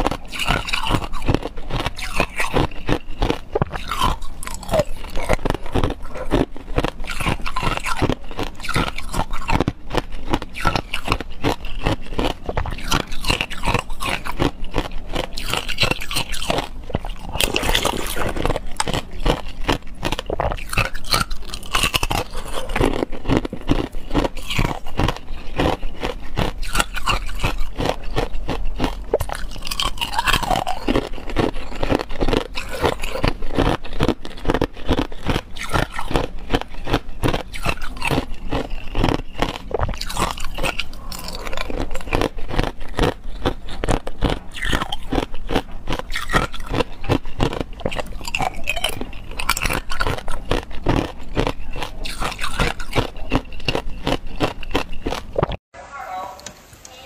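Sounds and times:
ice crunching between teeth: 0:00.0 - 0:55.6.

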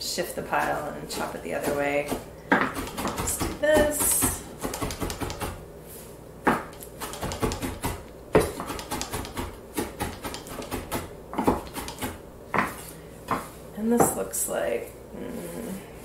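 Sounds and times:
knife chopping on wooden board: 0:00.6 - 0:05.6, 0:06.5 - 0:13.5.

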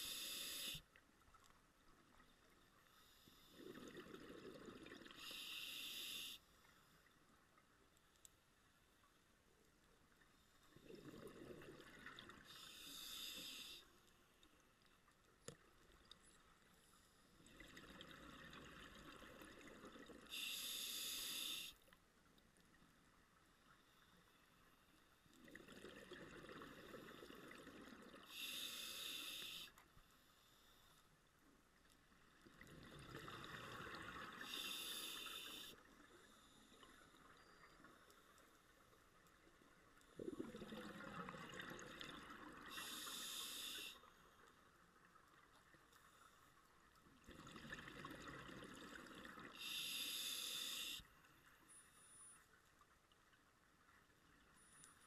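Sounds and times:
regulator hiss: 0:00.0 - 0:00.8, 0:05.2 - 0:06.5, 0:12.5 - 0:13.8, 0:20.3 - 0:21.8, 0:28.3 - 0:29.8, 0:34.4 - 0:35.8, 0:42.7 - 0:44.0, 0:49.6 - 0:51.0
bubbling exhale underwater: 0:40.2 - 0:42.4.

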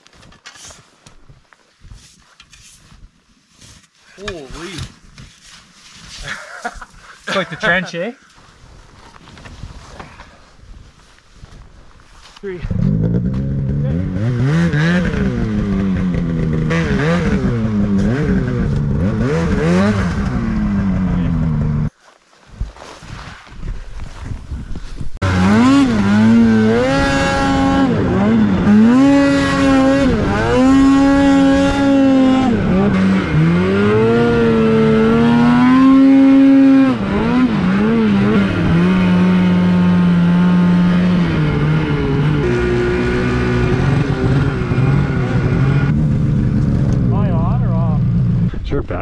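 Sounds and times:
snowmobile engine revving: 0:12.5 - 0:21.9, 0:25.2 - 0:49.0.

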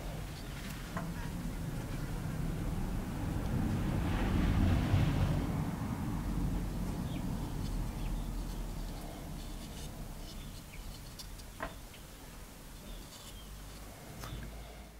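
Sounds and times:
wind buffeting microphone: 0:01.3 - 0:08.7
small birds chirping: 0:07.0 - 0:12.1, 0:12.7 - 0:14.8.

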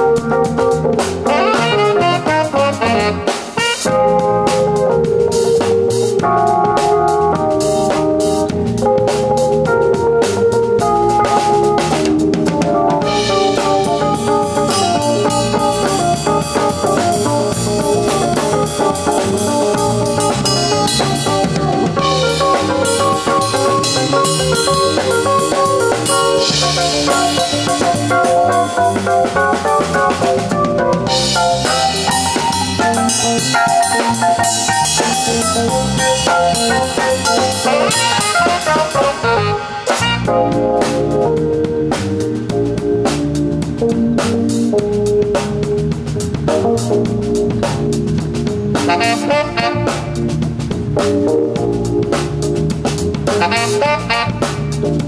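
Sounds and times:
bass drum: 0:00.0 - 0:55.0
small live band playing: 0:00.0 - 0:55.0
snare drum: 0:29.2 - 0:41.0, 0:48.8 - 0:50.2.

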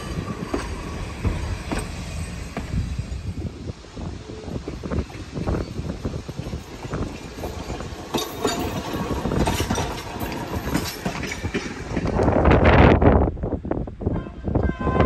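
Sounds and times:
wheels clicking over rail joints: 0:00.0 - 0:03.6, 0:04.5 - 0:12.6
electric railcar running on rails: 0:00.0 - 0:15.0.

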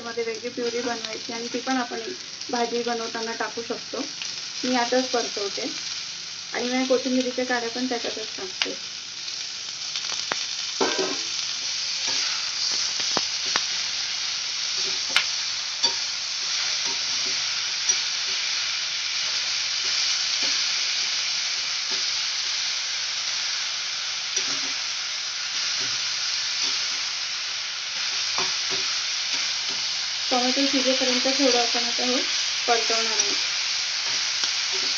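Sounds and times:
vegetables sizzling in a pan: 0:00.0 - 0:34.9
metal spatula scraping a pan: 0:12.0 - 0:12.9.

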